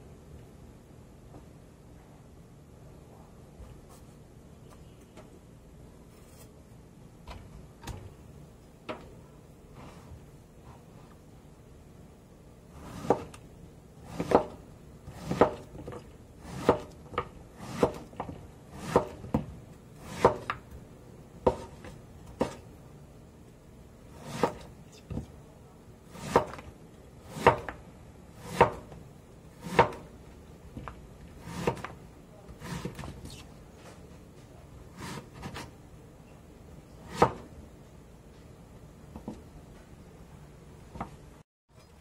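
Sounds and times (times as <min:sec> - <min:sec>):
cleaver chopping on wooden board: 0:18.8 - 0:19.2, 0:20.1 - 0:20.6, 0:27.3 - 0:27.8, 0:28.4 - 0:28.9, 0:29.6 - 0:30.0.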